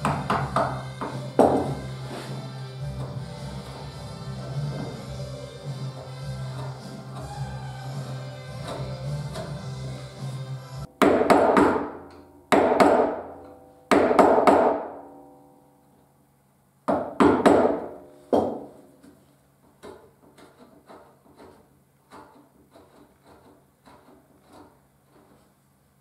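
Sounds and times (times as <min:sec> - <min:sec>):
mallet striking gouge in wood: 0:00.0 - 0:01.8, 0:11.0 - 0:14.9
gouge ticks and scrapes: 0:19.8 - 0:25.5.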